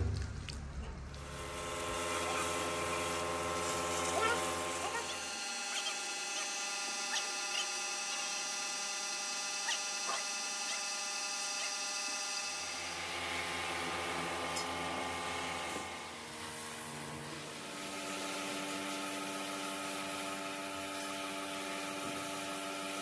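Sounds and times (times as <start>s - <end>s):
pressure washer motor hum: 0.0s - 23.0s
water spray hissing: 1.1s - 8.4s.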